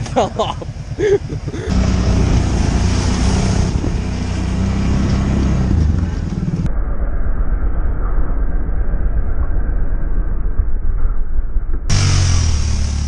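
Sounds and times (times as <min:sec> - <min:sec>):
atv engine running: 0:00.0 - 0:06.7, 0:11.9 - 0:13.0.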